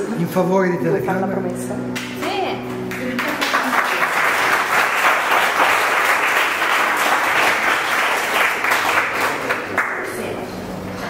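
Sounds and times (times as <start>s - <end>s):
crowd applauding: 2.8s - 10.4s.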